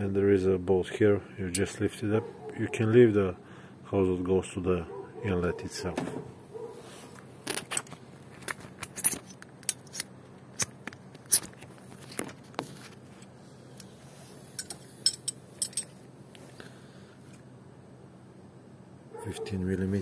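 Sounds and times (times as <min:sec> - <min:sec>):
faint steady hum: 0:00.0 - 0:20.0
hand tools clinking: 0:14.6 - 0:16.0.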